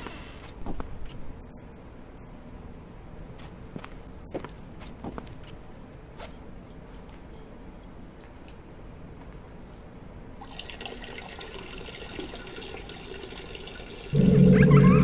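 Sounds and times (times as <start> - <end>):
loud low rumble: 14.1 - 15.0.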